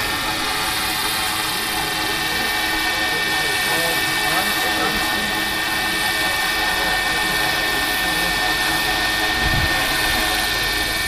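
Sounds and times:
model helicopter rotor whine: 0.0 - 11.0.

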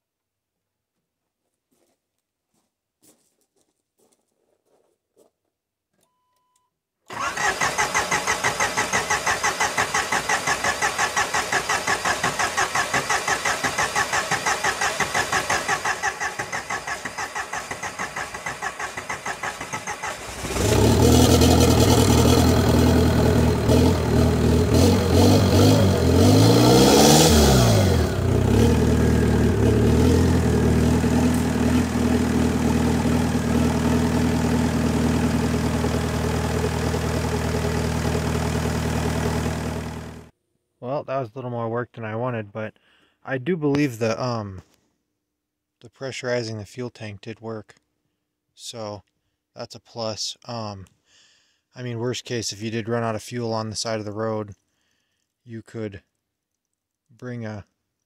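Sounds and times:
starter cranking engine: 7.1 - 40.2
diesel engine revving and idling: 7.1 - 40.3.

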